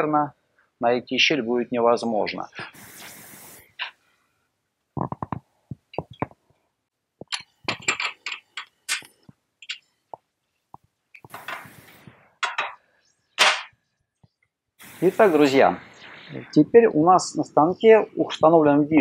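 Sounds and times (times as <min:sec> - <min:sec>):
metallic clinks and knocks: 0:07.2 - 0:09.9, 0:12.4 - 0:12.8.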